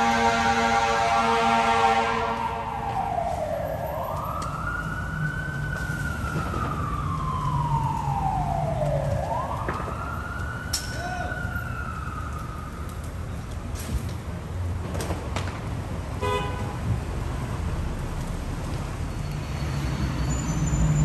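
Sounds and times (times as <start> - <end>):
lower siren tone: 0.0 - 13.1
emergency siren wailing: 0.0 - 13.7.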